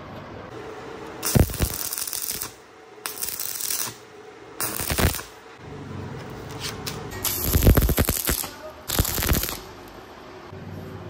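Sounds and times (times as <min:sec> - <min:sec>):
arc welding crackling and sizzling: 0:00.6 - 0:05.6, 0:06.6 - 0:10.0.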